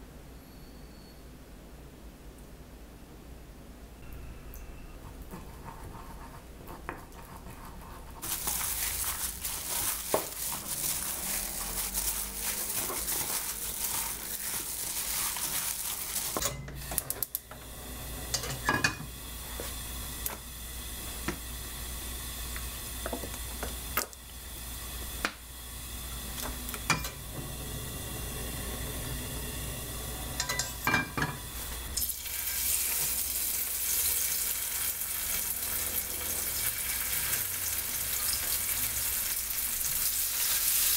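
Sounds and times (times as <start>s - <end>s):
wooden spoon stirring thick sauce: 5.0s - 16.4s
food sizzling in hot oil: 8.2s - 40.9s
kitchenware clicks and knocks: 18.3s - 19.1s.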